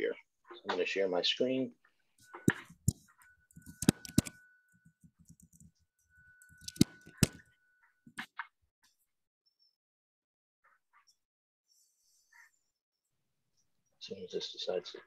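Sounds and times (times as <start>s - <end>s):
faint steady high tone: 2.2s - 8.2s
sharp clicks: 2.5s - 4.4s, 6.5s - 7.4s.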